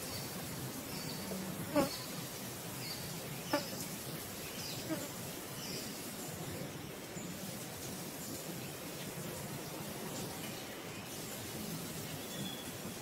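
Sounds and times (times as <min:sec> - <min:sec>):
insect buzzing: 0:01.6 - 0:02.1, 0:03.4 - 0:03.9, 0:04.7 - 0:05.2.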